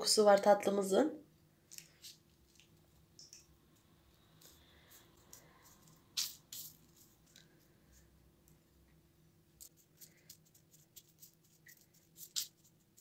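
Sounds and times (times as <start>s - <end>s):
baking paper rustling and clicks: 9.6s - 13.0s.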